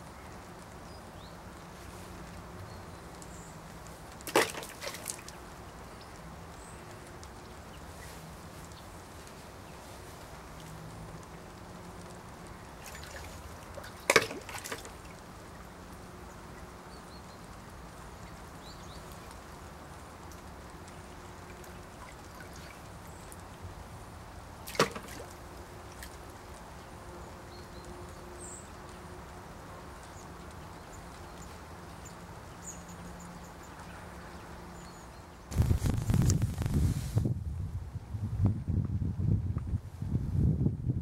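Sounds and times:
sharp water splashes: 4.1s - 5.5s, 12.5s - 15.6s, 21.0s - 23.4s, 24.6s - 26.2s
water sloshing in bucket: 4.2s - 5.4s, 12.7s - 15.2s, 24.6s - 26.2s.

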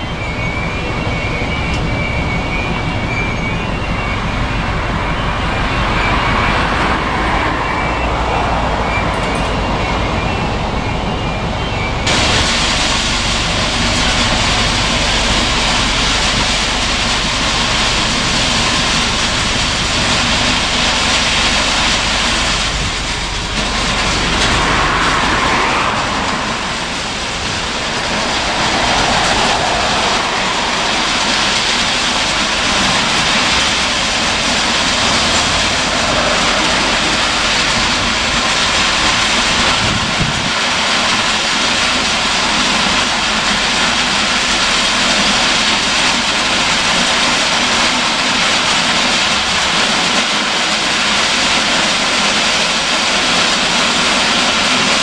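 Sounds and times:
faint wheel squeal: 0.0s - 12.1s, 24.4s - 32.2s
steel wheels rolling on rails: 0.0s - 55.0s.

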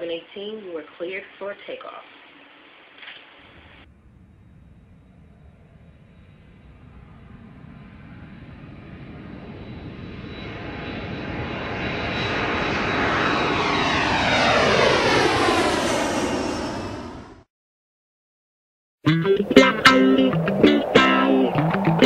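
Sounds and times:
high engine whine: 3.4s - 17.4s, 19.3s - 22.0s
airliner engine noise: 3.4s - 17.5s, 19.3s - 22.0s.

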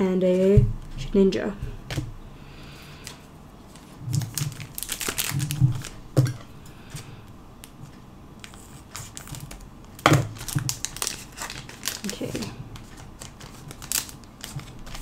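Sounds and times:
foil wrapper crinkling: 3.7s - 6.4s, 8.4s - 15.0s.

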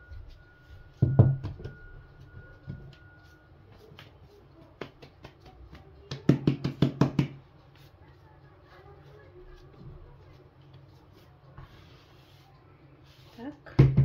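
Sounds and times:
dough slapped between palms: 4.7s - 7.4s
dough thumping on table: 4.8s - 7.4s, 13.6s - 14.0s.

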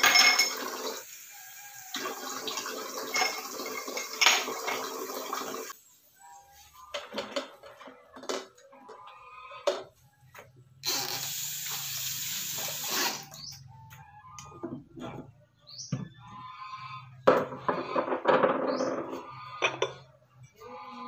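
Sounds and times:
faucet water running into sink: 0.0s - 5.7s
knocks and clatter at sink: 17.3s - 20.0s.

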